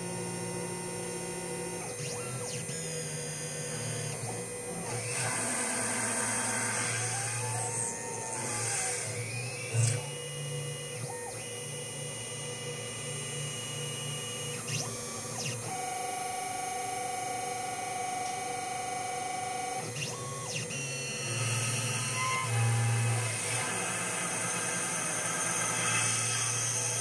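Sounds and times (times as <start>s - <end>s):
milling machine spindle whine: 0.0s - 27.0s
drive motors rising tone: 19.8s - 27.0s.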